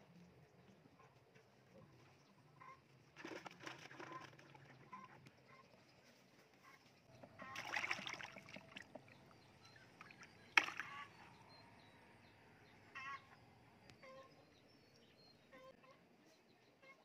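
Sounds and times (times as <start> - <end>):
fish splashing into bucket: 3.2 - 4.7, 7.4 - 9.0, 10.0 - 11.1
fish thrashing in water: 3.2 - 4.9, 7.4 - 9.0, 9.9 - 11.1.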